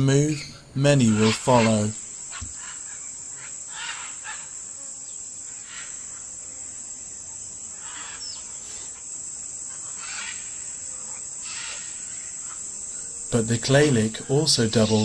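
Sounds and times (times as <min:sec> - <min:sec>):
insects droning: 0:00.0 - 0:15.0
parrots calling: 0:00.3 - 0:04.5, 0:07.8 - 0:08.5, 0:09.7 - 0:12.6, 0:14.6 - 0:15.0.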